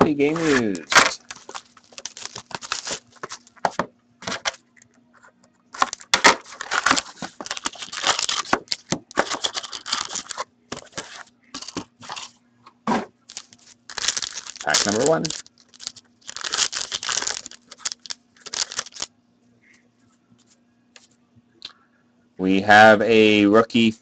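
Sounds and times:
plastic wrap crinkling: 0:00.2 - 0:04.5, 0:05.8 - 0:12.3, 0:13.3 - 0:19.1
cardboard box opening: 0:00.3 - 0:03.5, 0:05.8 - 0:12.3.

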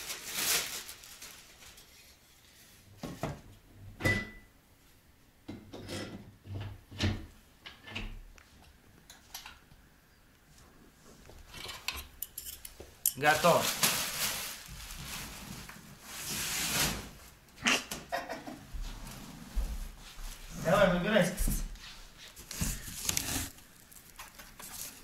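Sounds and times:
plastic packaging rustling: 0:00.0 - 0:02.5, 0:13.2 - 0:17.4, 0:22.0 - 0:25.0.

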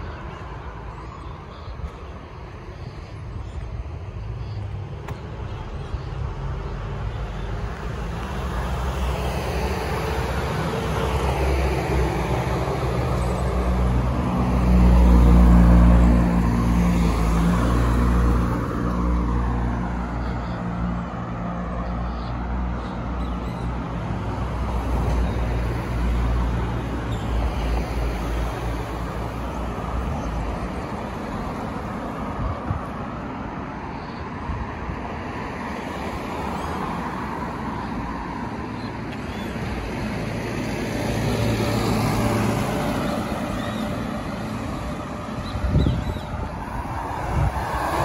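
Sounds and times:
traffic rumble: 0:00.0 - 0:48.0
vehicle passing close: 0:40.1 - 0:48.0.

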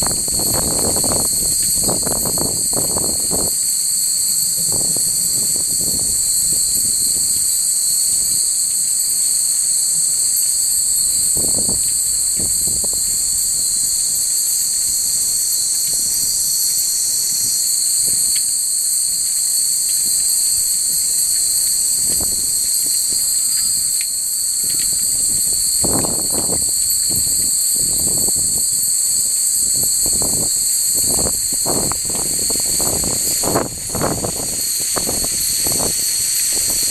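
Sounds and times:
wind gusts on microphone: 0:00.0 - 0:03.7, 0:04.4 - 0:08.5, 0:11.0 - 0:14.0, 0:21.3 - 0:23.7, 0:24.6 - 0:36.9
insects chorus: 0:00.0 - 0:36.9.

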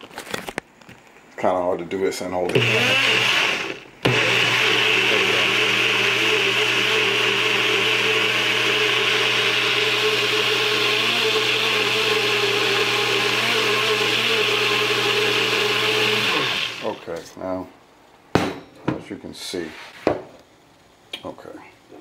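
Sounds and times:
blender motor running: 0:02.5 - 0:17.1.

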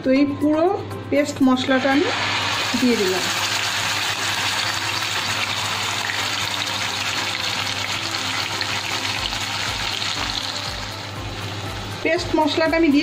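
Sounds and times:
spice paste sizzling in oil: 0:01.6 - 0:13.0.

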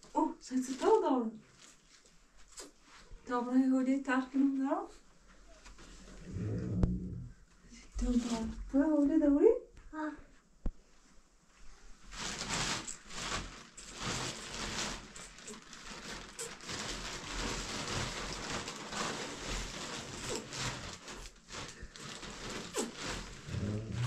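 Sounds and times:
plastic bag rustling and crinkling: 0:00.0 - 0:03.3, 0:07.9 - 0:08.9, 0:11.6 - 0:24.0.

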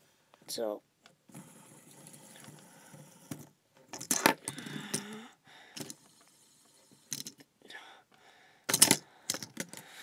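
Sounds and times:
small clattering rattle: 0:07.1 - 0:07.4.

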